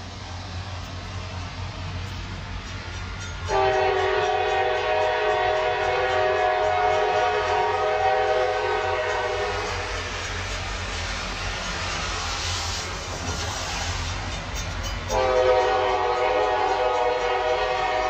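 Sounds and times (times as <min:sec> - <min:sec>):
train rumble: 0:00.0 - 0:18.0
train horn chord: 0:03.5 - 0:09.8, 0:15.1 - 0:18.0.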